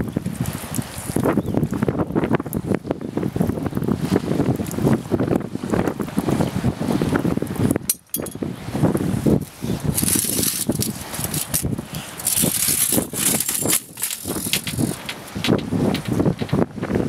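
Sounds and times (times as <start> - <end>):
steel grating scraping on concrete: 9.9 - 15.6.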